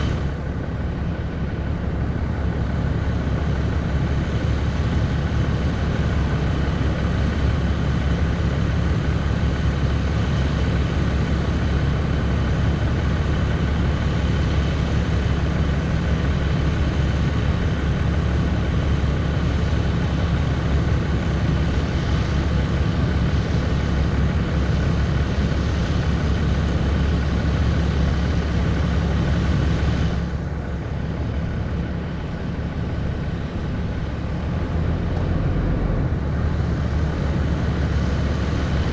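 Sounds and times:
diesel engine idling: 0.0s - 38.9s.

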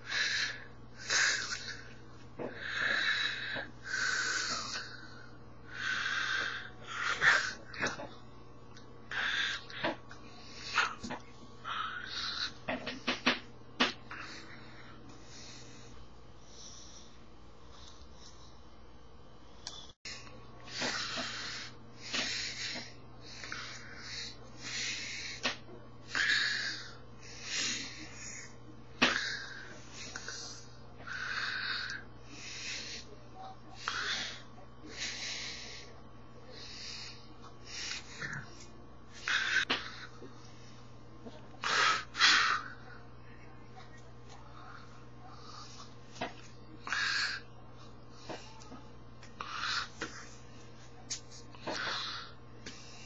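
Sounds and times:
breathy hissing: 0.0s - 8.1s, 9.0s - 13.0s, 20.1s - 40.8s, 41.6s - 43.1s, 46.8s - 48.7s, 49.4s - 50.6s
faint room hum: 0.0s - 53.0s.

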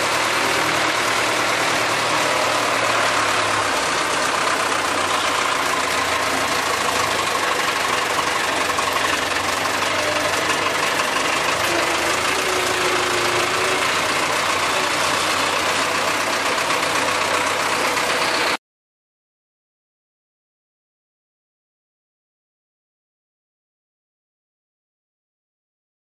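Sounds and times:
tractor engine running: 0.0s - 18.6s.

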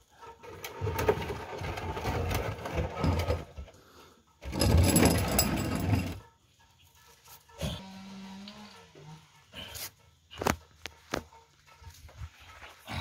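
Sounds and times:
container scraping across concrete: 0.2s - 3.8s, 4.4s - 6.3s.

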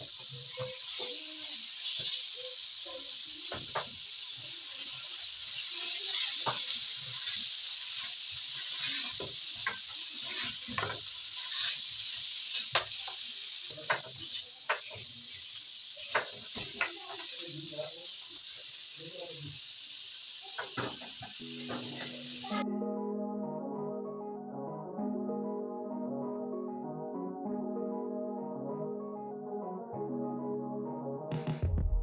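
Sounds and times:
beef sizzling in frying pan: 0.0s - 22.6s.

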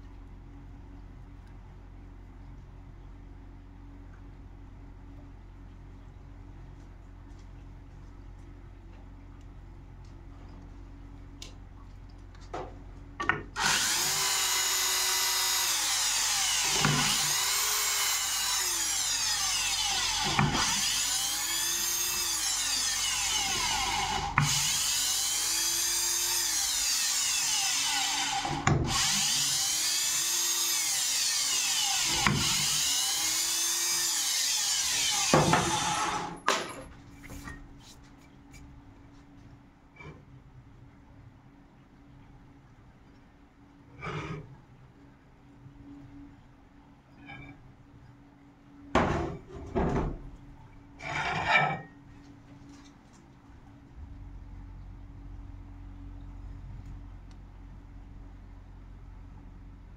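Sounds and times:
cordless drill motor whine: 13.6s - 36.4s.

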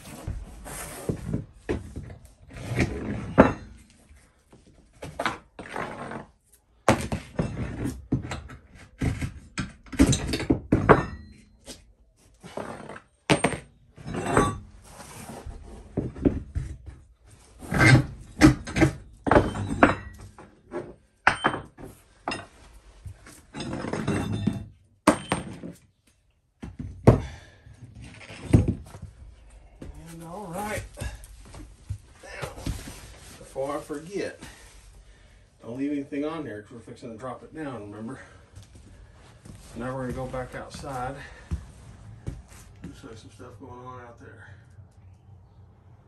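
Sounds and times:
scuffs on wooden floor: 38.5s - 43.1s.

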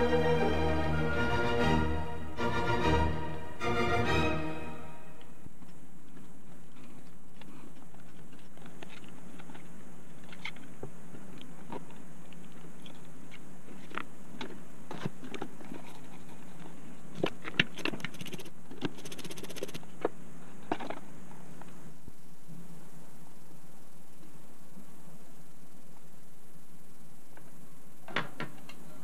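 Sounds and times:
low hum: 0.0s - 5.6s.

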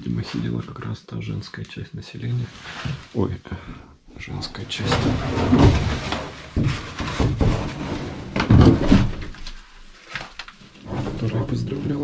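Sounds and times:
boards and debris knocking: 4.6s - 12.0s.

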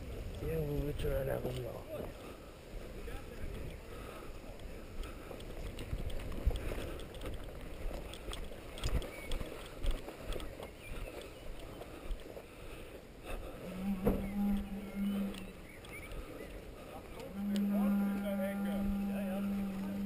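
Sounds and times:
wind on microphone: 2.7s - 12.2s
steady low tone: 13.4s - 15.8s.

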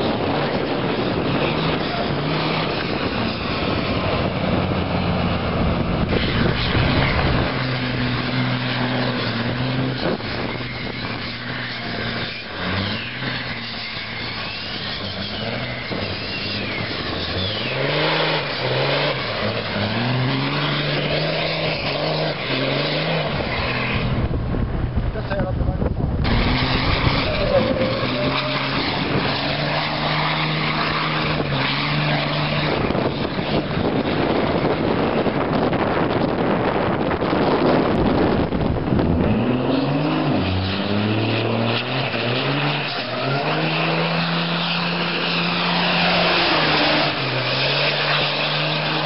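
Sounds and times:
truck diesel engine revving: 0.0s - 24.8s, 26.2s - 49.0s
tyres hissing and squealing: 6.1s - 24.1s, 26.3s - 33.7s, 39.8s - 49.0s.

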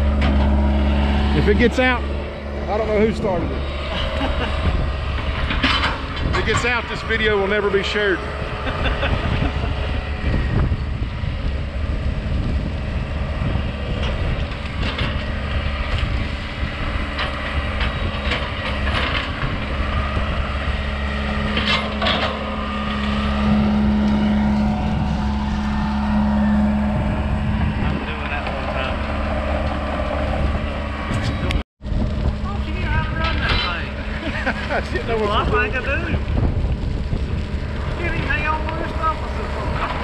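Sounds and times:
excavator diesel engine running: 0.0s - 40.0s
wood cracking and crunching: 31.2s - 40.0s.

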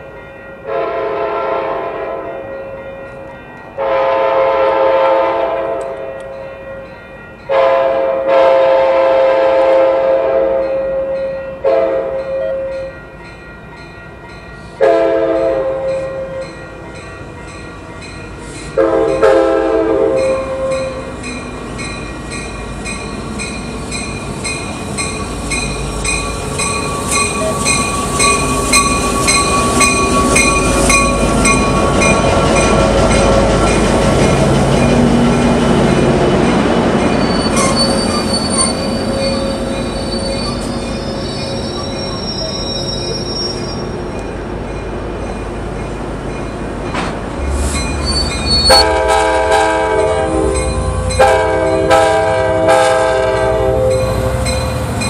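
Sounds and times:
crossing bell ringing: 0.0s - 55.0s
train rumble: 0.0s - 55.0s
train horn blasts: 0.6s - 2.4s, 3.8s - 6.3s, 7.5s - 12.9s, 14.8s - 16.6s, 18.7s - 21.1s, 48.5s - 54.8s.

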